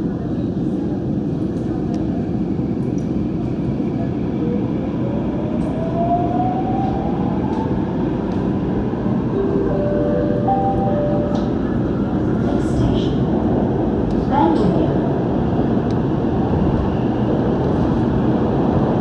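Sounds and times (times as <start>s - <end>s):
steady tones: 9.3s - 12.4s
train wheels rumbling on track: 10.4s - 19.0s.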